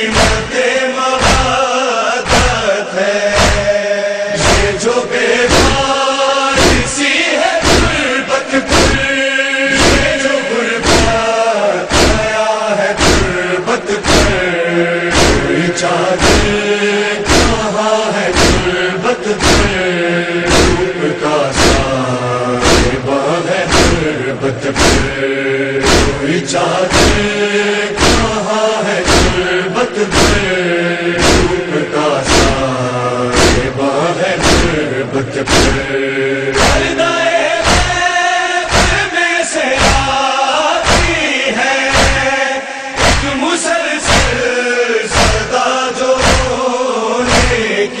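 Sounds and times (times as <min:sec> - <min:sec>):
men chanting in unison: 0:00.0 - 0:48.0
chest beating: 0:05.5 - 0:05.9, 0:09.8 - 0:10.2, 0:11.9 - 0:12.3, 0:13.0 - 0:13.4, 0:14.0 - 0:14.5, 0:15.1 - 0:15.6, 0:16.2 - 0:16.6, 0:17.2 - 0:17.7, 0:18.3 - 0:18.8, 0:19.4 - 0:19.8, 0:20.5 - 0:21.9, 0:22.6 - 0:23.1, 0:23.7 - 0:24.1, 0:24.7 - 0:25.2, 0:25.8 - 0:26.3, 0:26.9 - 0:27.3, 0:28.0 - 0:28.4, 0:29.1 - 0:29.4, 0:30.1 - 0:30.5, 0:31.2 - 0:31.6, 0:32.2 - 0:32.7, 0:33.3 - 0:33.8, 0:34.4 - 0:34.8, 0:35.4 - 0:37.0, 0:37.6 - 0:38.0, 0:38.7 - 0:39.0, 0:40.8 - 0:41.2, 0:43.0 - 0:43.3.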